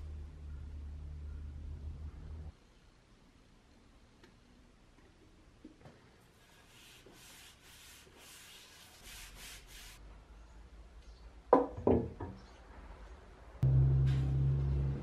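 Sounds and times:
gloved hand rubbing wood: 0:06.3 - 0:10.0.

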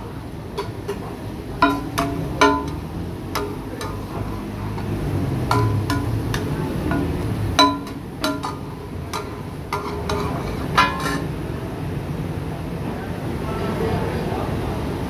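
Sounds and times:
metal spatula clanking on iron griddle: 0:00.6 - 0:11.5.

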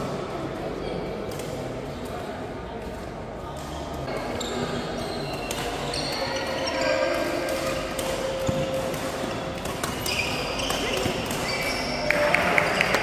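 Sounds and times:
shoes squeaking on court: 0:03.7 - 0:12.1
rackets hitting shuttlecock: 0:05.3 - 0:13.0.

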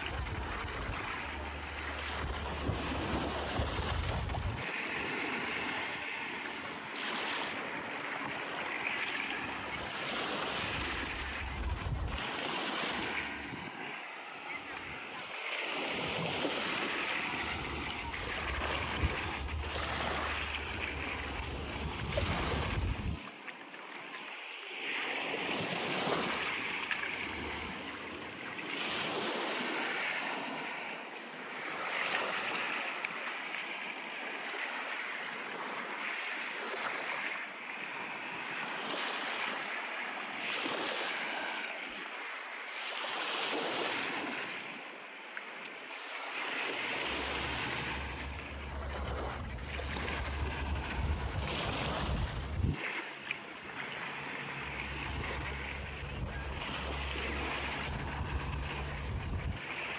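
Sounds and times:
waves washing up a beach: 0:00.0 - 0:59.9
low rumble: 0:47.8 - 0:52.8, 0:54.8 - 0:59.6.

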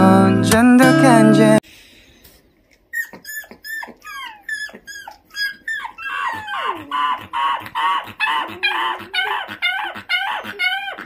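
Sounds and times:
puppy squealing and whining: 0:02.9 - 0:11.0.

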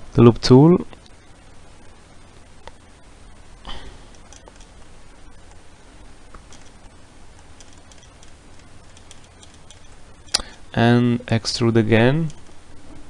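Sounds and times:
microphone hum and hiss: 0:00.0 - 0:13.0
mouse and keyboard clicks: 0:04.1 - 0:04.7, 0:06.4 - 0:06.8, 0:07.4 - 0:10.5.

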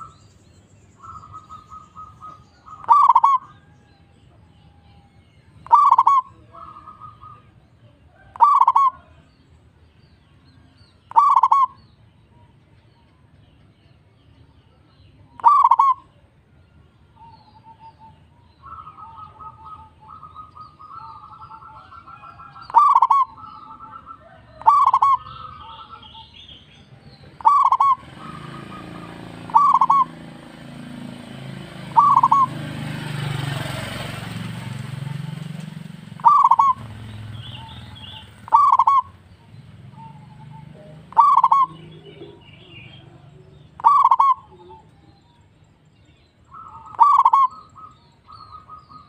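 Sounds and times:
dove cooing: 0:01.0 - 0:03.8, 0:05.6 - 0:09.2, 0:11.1 - 0:11.8, 0:15.3 - 0:16.2, 0:17.2 - 0:45.1, 0:46.5 - 0:49.0.

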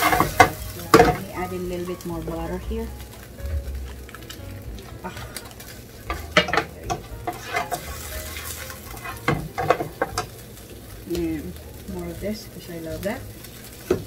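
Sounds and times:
utensil scraping a pan: 0:00.0 - 0:01.4, 0:04.9 - 0:10.5
butter sizzling in a pan: 0:00.0 - 0:14.0.

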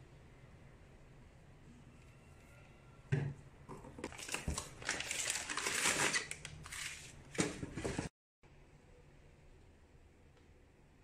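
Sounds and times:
packing paper crinkling and rustling: 0:04.0 - 0:08.0.

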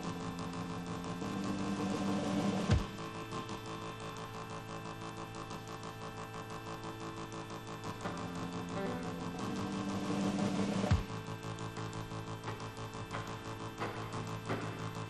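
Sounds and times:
rock band droning chord: 0:08.0 - 0:11.1
heavy drum hit: 0:10.9 - 0:11.1.

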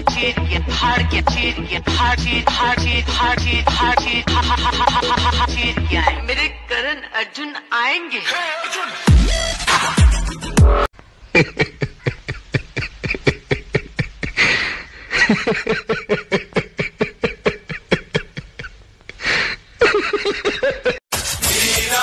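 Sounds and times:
music: 0:00.0 - 0:06.6, 0:08.3 - 0:10.9, 0:21.1 - 0:22.0
person laughing heartily: 0:11.3 - 0:21.1.

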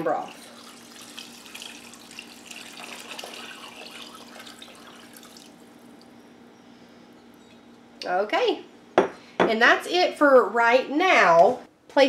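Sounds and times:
broth pouring into liquid: 0:00.3 - 0:06.1.

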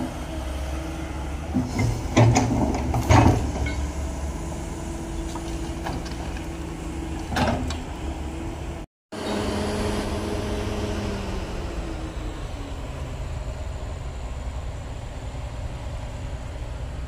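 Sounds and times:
diesel engine running: 0:00.0 - 0:17.0
metallic clank: 0:01.6 - 0:04.0.

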